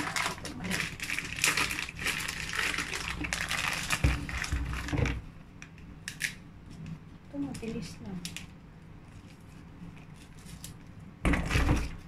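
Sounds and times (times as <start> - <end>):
plastic bag crinkling: 0.0 - 5.2.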